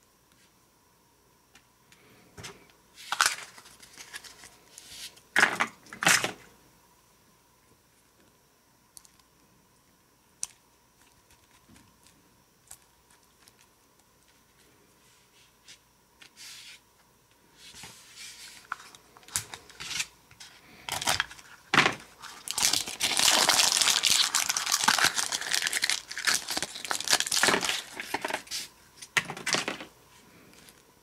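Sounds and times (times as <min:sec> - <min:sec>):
plastic wrapper crinkling and tearing: 0:03.0 - 0:04.6, 0:20.9 - 0:28.5.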